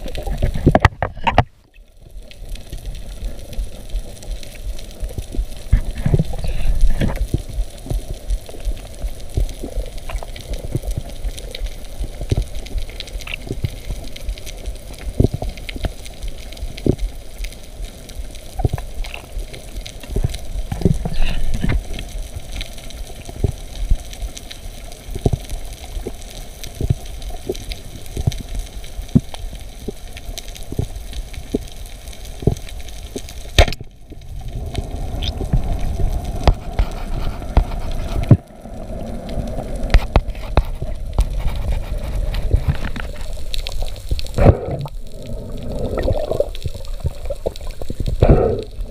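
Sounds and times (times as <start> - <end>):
underwater clicks and crackles: 0.0 - 48.9
low underwater rumble: 30.7 - 48.9.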